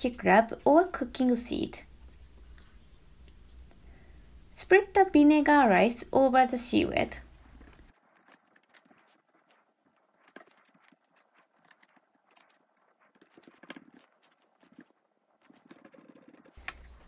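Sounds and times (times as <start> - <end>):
rice paddle tapping and scraping: 7.4 - 17.0.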